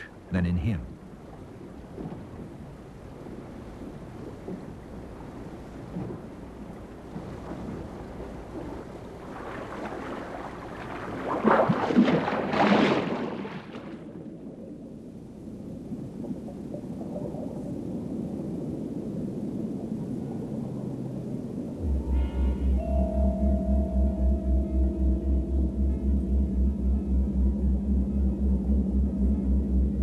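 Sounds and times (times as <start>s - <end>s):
sea noise: 0.0s - 30.0s
wind: 0.0s - 30.0s
dull low underwater sound: 0.9s - 30.0s
diver splashing into water: 9.3s - 14.2s.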